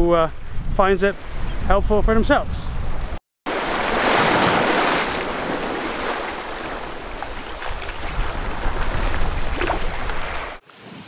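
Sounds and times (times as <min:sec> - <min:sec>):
wind on microphone: 0:00.0 - 0:03.2, 0:05.1 - 0:10.6
small waves breaking on rocks: 0:03.5 - 0:11.0.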